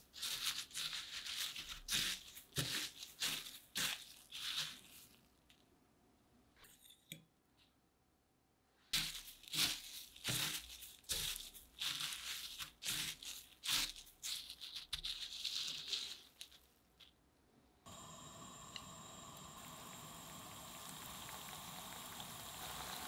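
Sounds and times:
breadcrumbs crunching and rustling: 0.0s - 5.7s, 8.9s - 17.2s.

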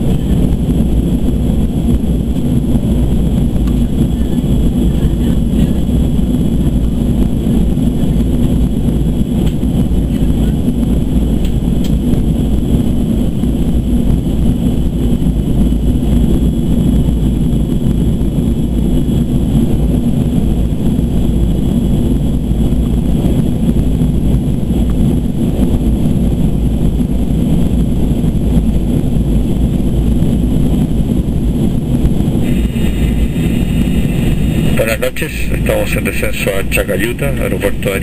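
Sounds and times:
airplane cabin rumble: 0.0s - 38.0s
high-pitched engine whines: 31.6s - 38.0s.

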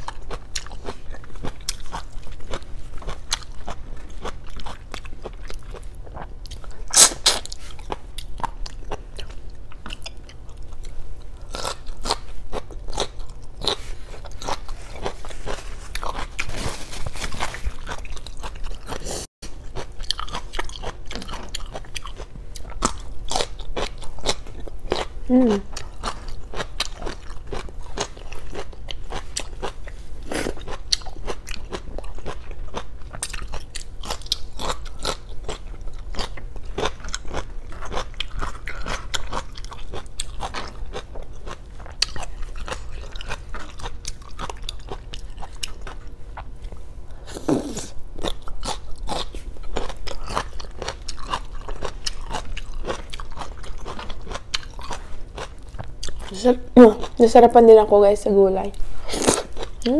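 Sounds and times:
crunching vegetable stalks: 13.6s - 18.1s.

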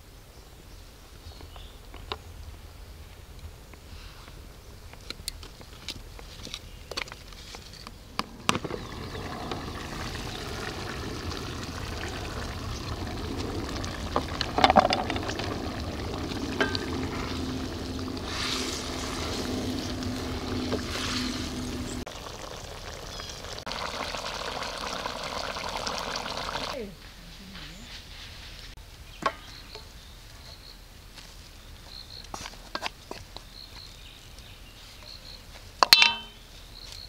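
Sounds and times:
curry bubbling in a pan: 8.4s - 26.8s.

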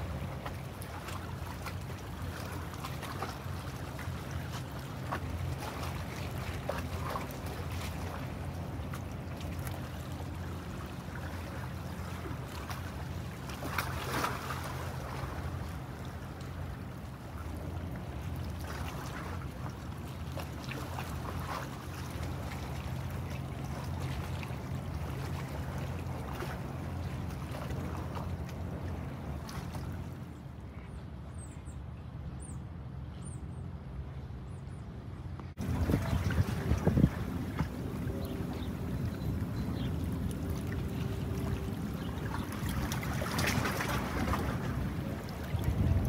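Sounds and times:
wind and water hiss: 0.0s - 46.0s
ship engine drone: 33.8s - 43.3s.

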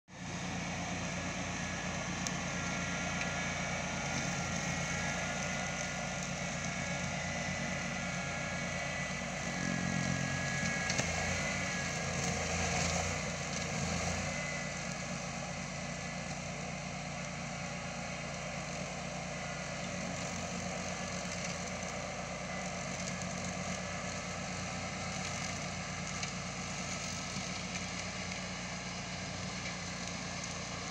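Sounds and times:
ride-on mower engine running: 0.1s - 30.9s
thin whine: 0.6s - 16.1s.

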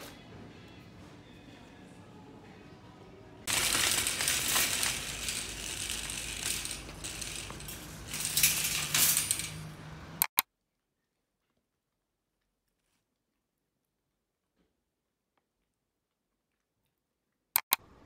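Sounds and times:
shopping trolley rattling: 3.4s - 10.0s.

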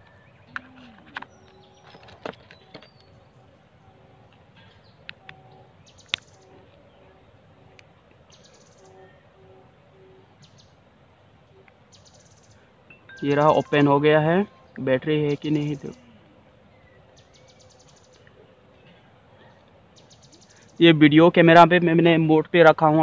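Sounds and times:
faint bird calls: 0.0s - 10.8s, 14.5s - 20.8s.

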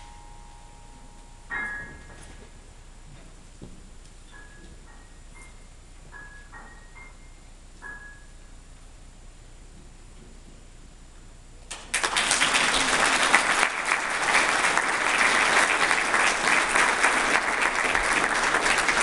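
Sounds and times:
audience applauding: 11.7s - 19.0s.

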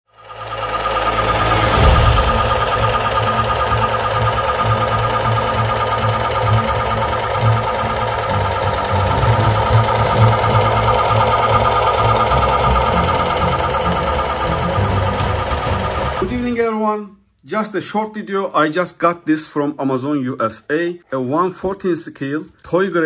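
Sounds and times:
toy engine whirring clatter: 0.2s - 16.4s.

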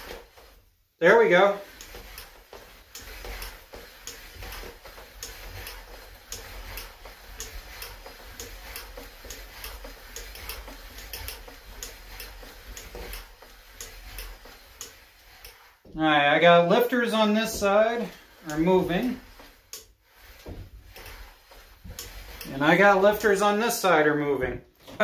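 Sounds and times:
engine clicking turned by hand: 1.8s - 15.6s.

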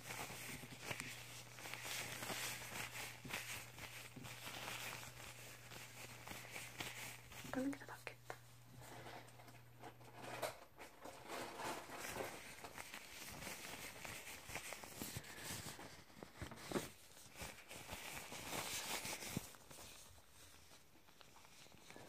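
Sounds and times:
fabric rustling on microphone: 0.0s - 7.7s, 11.1s - 22.0s
low steady hum: 0.0s - 22.0s.

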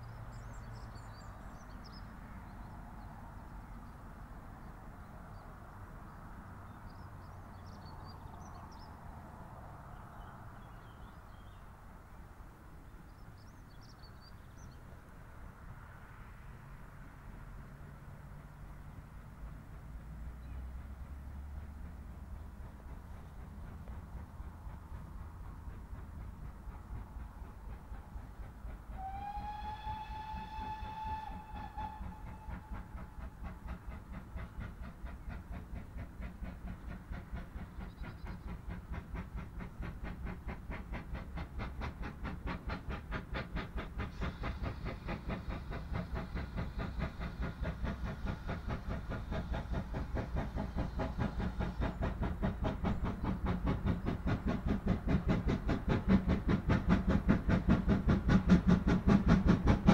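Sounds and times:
steam locomotive exhaust beats: 0.0s - 59.9s
steam locomotive whistle: 29.0s - 33.0s.

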